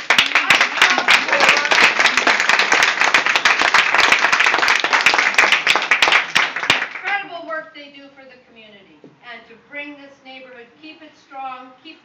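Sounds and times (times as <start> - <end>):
group applauding: 0.0 - 7.3.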